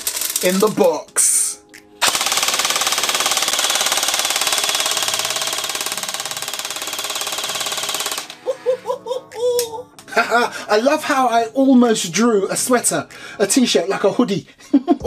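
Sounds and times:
airsoft gun full-auto burst: 0:02.0 - 0:08.4.

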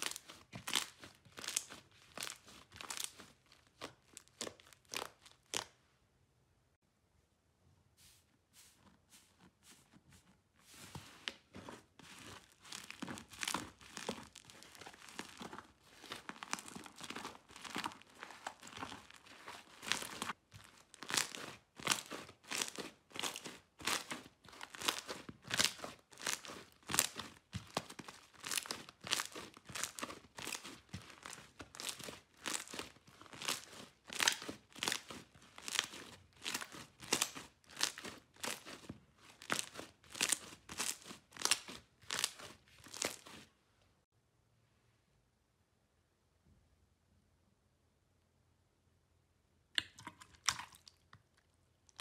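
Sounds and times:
slime crackling and popping: 0:00.0 - 0:05.8, 0:11.6 - 0:43.4.

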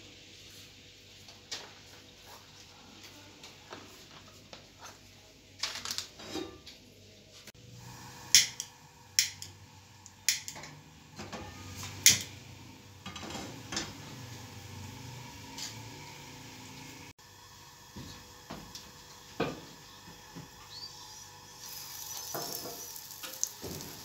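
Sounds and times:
metal clanks on burner grate: 0:22.2 - 0:24.0.

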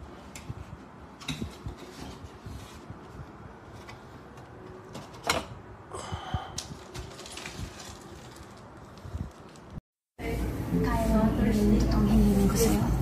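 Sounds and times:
plastic wrapping rustling: 0:06.7 - 0:09.8.

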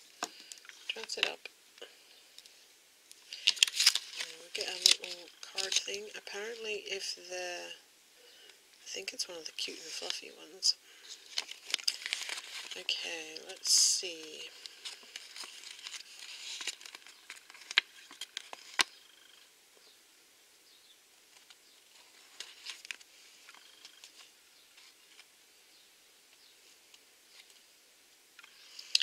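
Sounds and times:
paper card crinkling and rustling: 0:03.3 - 0:06.4, 0:11.0 - 0:19.4, 0:21.3 - 0:25.3.

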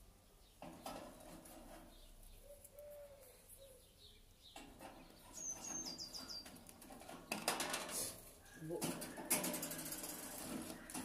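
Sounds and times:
lovebird chirping: 0:01.9 - 0:06.6
wire birdcage rattling: 0:04.6 - 0:11.0.

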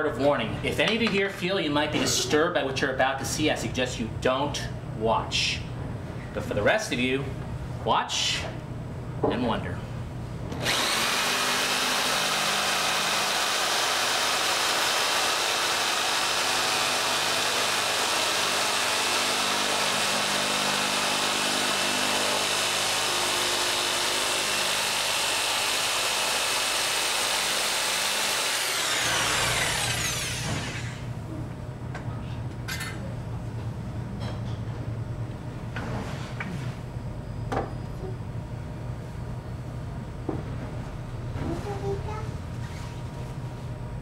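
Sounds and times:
power drill whining: 0:10.6 - 0:31.1.

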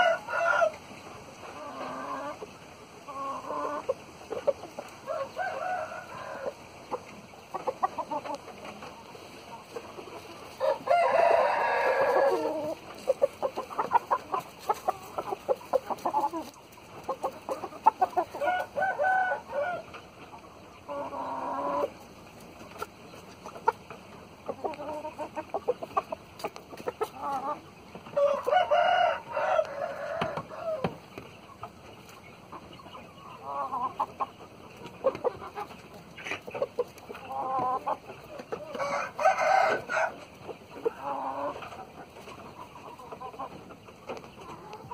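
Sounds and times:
roosters crowing: 0:00.0 - 0:02.4, 0:04.9 - 0:08.4, 0:09.7 - 0:20.1, 0:26.8 - 0:31.1, 0:36.7 - 0:41.6
chicken clucks and calls: 0:00.0 - 0:44.9.

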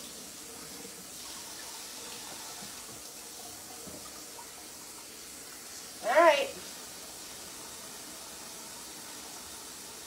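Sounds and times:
tap running into sink: 0:03.7 - 0:04.5.

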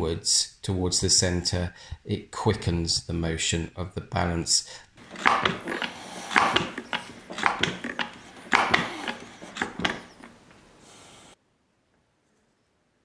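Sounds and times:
hand pump strokes: 0:05.0 - 0:11.4
small clicks: 0:05.0 - 0:11.4.

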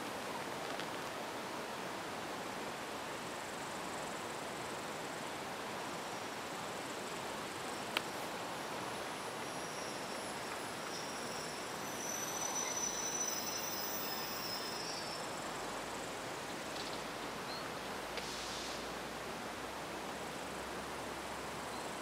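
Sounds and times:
background hiss: 0:00.0 - 0:22.0
insects trilling: 0:05.9 - 0:18.9.

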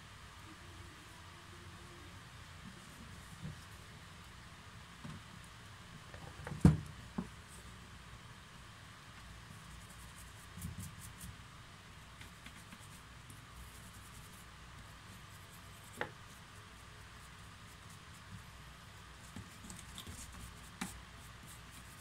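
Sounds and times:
toothbrush brushing plastic: 0:19.2 - 0:22.0.

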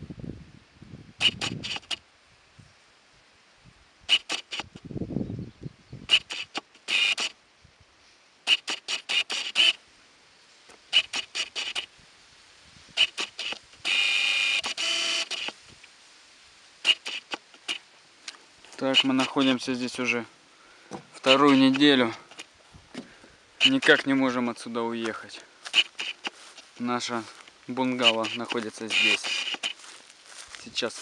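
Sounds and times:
songbird chattering song: 0:04.6 - 0:06.5.

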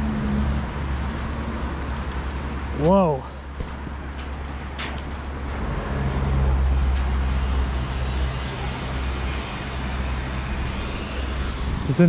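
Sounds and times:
vehicle passing by: 0:03.8 - 0:12.0.

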